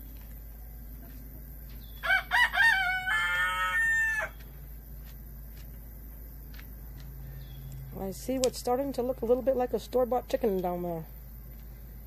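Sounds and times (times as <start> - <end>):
rooster crowing: 2.0 - 4.4.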